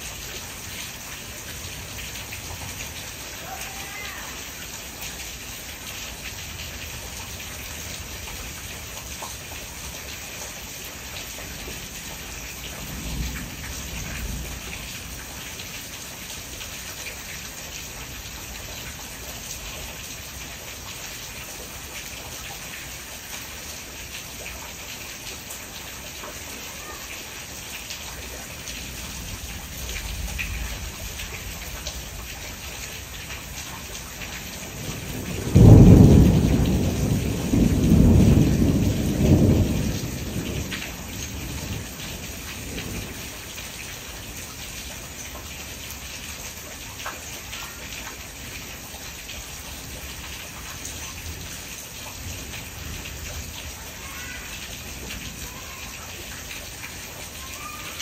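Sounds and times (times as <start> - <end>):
steady rain falling: 0.0 - 58.0
thunder clap and rumbling: 12.8 - 15.4, 34.5 - 43.4.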